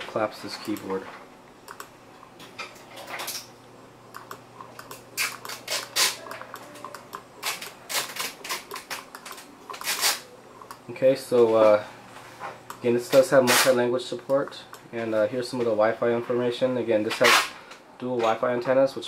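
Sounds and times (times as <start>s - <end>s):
irregular clicks: 4.1s - 5.6s.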